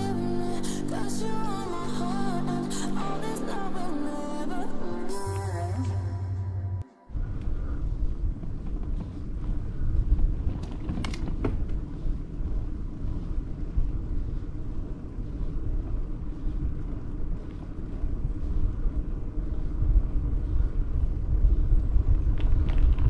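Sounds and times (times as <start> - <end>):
wind on microphone: 7.1 - 23.0
road and tyre noise: 7.3 - 23.0.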